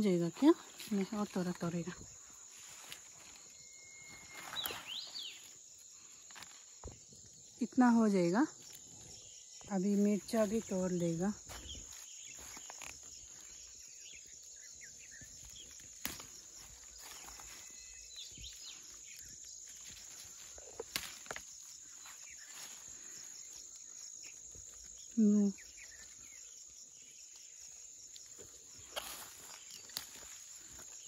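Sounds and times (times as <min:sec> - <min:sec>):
rustling leaves: 0:00.0 - 0:07.3, 0:08.2 - 0:31.0
insects droning: 0:00.0 - 0:31.0
plant shoots snapping: 0:15.8 - 0:16.4, 0:20.8 - 0:21.5.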